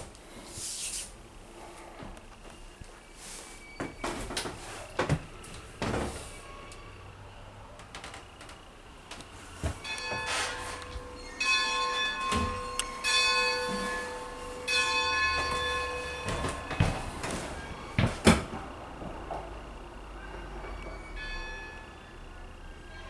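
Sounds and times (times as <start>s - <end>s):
locomotive bell ringing: 6.3s - 7.0s, 9.8s - 18.0s, 20.3s - 23.0s.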